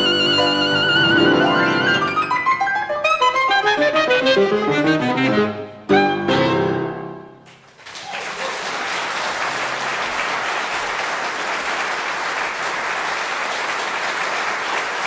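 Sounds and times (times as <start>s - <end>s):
music: 0.0s - 7.5s
audience applause: 7.4s - 15.0s.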